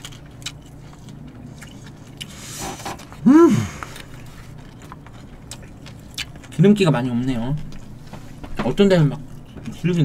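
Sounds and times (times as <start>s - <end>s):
person humming mmm: 3.2s - 3.9s.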